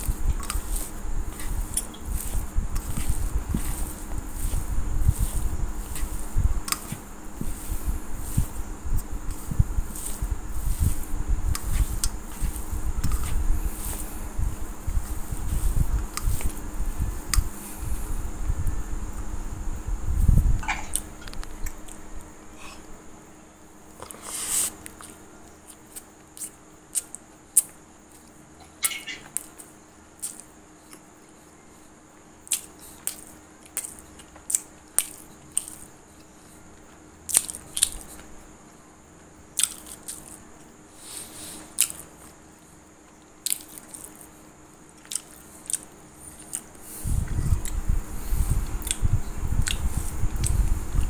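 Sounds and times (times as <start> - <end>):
chewing crunchy popcorn: 0.0 - 16.6, 24.0 - 31.1, 32.4 - 36.4, 37.3 - 38.3, 39.5 - 40.4, 41.7 - 42.4, 43.1 - 47.9.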